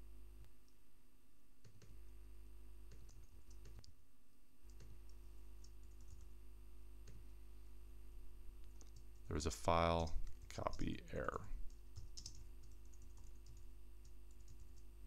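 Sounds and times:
steady low hum: 0.0s - 15.0s
keyboard keystrokes: 12.0s - 14.9s.

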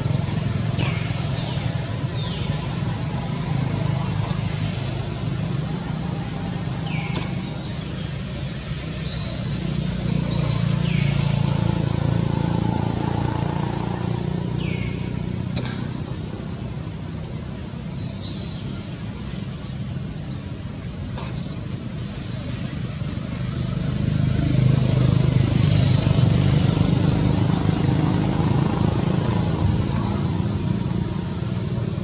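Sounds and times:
vehicle engine rumbling: 0.0s - 32.0s.

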